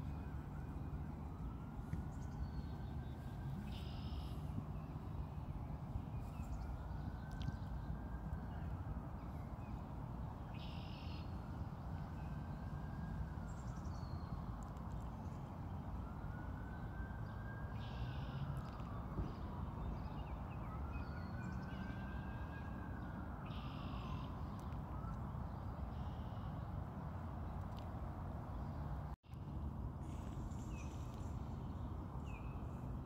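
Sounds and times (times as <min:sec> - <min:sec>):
siren rising and falling: 0:00.0 - 0:09.6
traffic rumble: 0:00.0 - 0:33.0
wind: 0:00.0 - 0:33.0.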